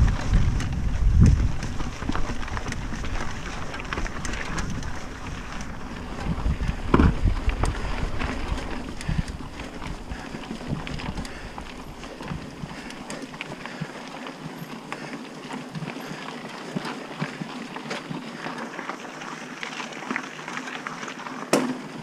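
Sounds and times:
wind rushing over microphone: 0:00.0 - 0:12.8
bike tyres crunching over stones: 0:00.0 - 0:22.0.

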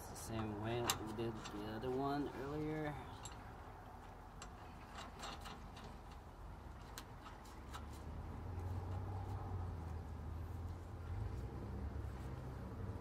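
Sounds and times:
light metal clicks: 0:03.0 - 0:07.9.

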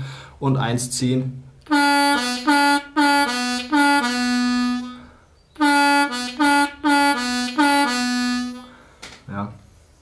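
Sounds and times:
harmonica riff: 0:01.7 - 0:08.8.

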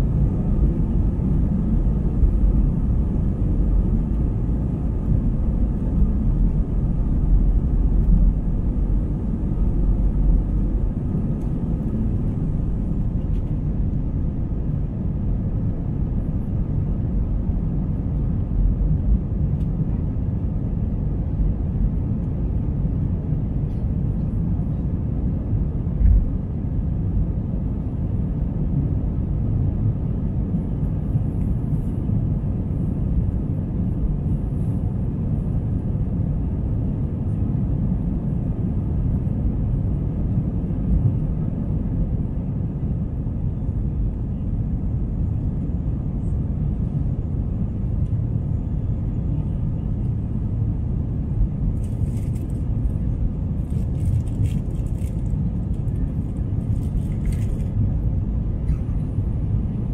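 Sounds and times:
jet engines rumbling in cabin: 0:00.0 - 0:59.9.

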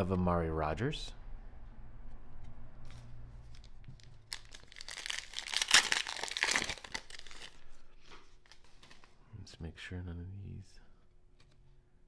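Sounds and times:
foil wrapper tearing and crinkling: 0:03.5 - 0:07.7.

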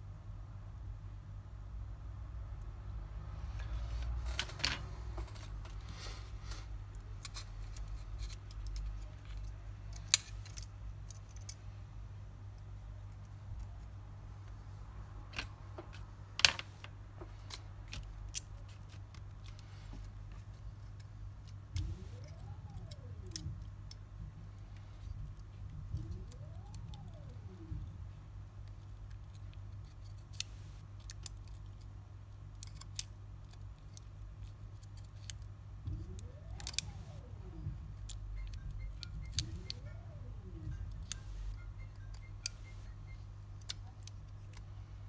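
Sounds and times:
hand tools clicking on phone parts: 0:04.2 - 0:11.7, 0:15.3 - 0:24.1, 0:28.6 - 0:37.2, 0:38.0 - 0:44.7.

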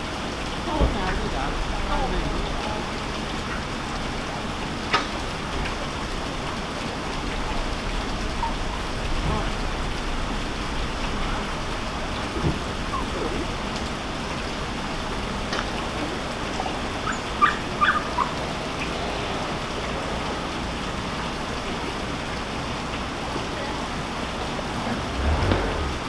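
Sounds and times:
high-pitched animal calls: 0:17.0 - 0:18.4.

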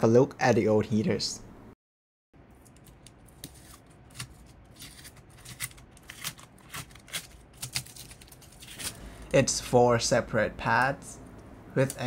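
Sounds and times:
foil tape crinkling: 0:02.8 - 0:09.0.

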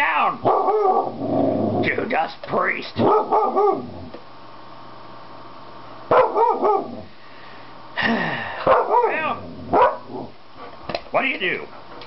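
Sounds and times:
dog barking: 0:00.4 - 0:01.2, 0:03.0 - 0:03.8, 0:06.1 - 0:07.0, 0:08.6 - 0:10.2.

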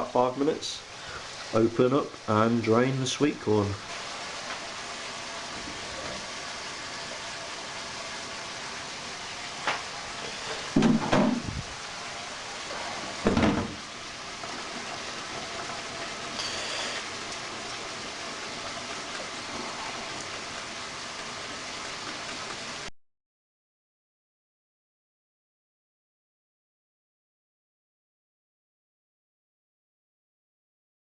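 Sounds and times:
steady background hiss: 0:00.0 - 0:22.9.

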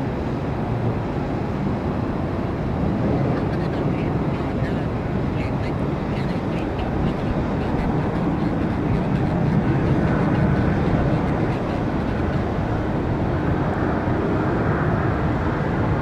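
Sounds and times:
jet engines running: 0:00.0 - 0:16.0.

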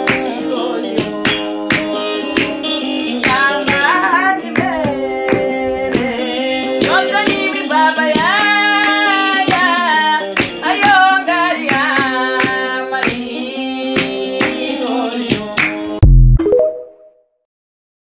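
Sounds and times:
woman singing: 0:00.0 - 0:15.4
held instrumental accompaniment: 0:00.0 - 0:17.2
loud low thump: 0:16.0 - 0:16.4.

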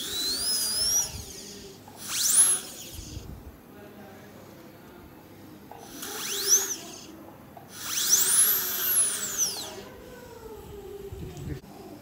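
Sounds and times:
dental drill whining: 0:00.0 - 0:03.3, 0:05.8 - 0:10.0.

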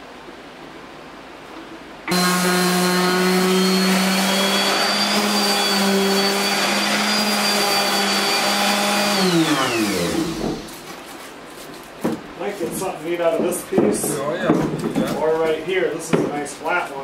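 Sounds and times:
power tool motor running: 0:02.1 - 0:10.8.

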